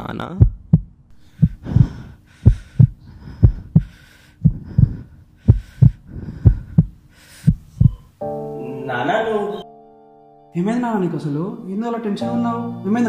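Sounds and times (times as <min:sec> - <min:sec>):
heartbeat thuds: 0:00.0 - 0:08.1
sustained held chord: 0:08.2 - 0:13.0.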